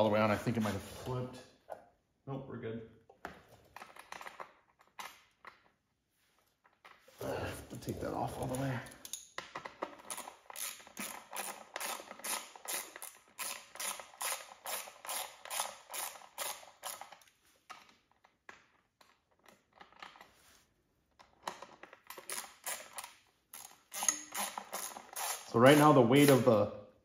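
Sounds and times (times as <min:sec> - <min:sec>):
ratchet wrench clicking: 0:10.1 - 0:17.2, 0:22.2 - 0:26.4.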